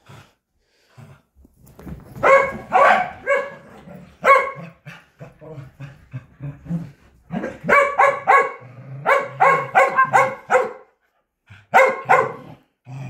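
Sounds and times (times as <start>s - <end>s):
dog barking: 2.2s - 4.8s, 7.4s - 11.0s, 11.7s - 12.6s.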